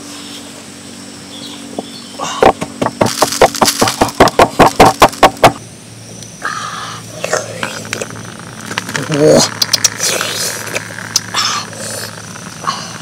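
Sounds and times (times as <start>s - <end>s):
stone pestle pounding in mortar: 2.5s - 5.6s.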